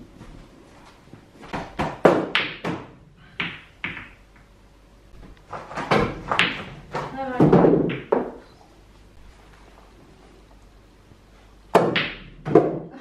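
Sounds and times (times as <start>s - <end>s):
balls thudding against table: 1.4s - 4.5s, 5.2s - 8.5s, 11.7s - 13.0s
pool balls clacking: 1.5s - 4.5s, 5.1s - 8.6s, 11.7s - 13.0s.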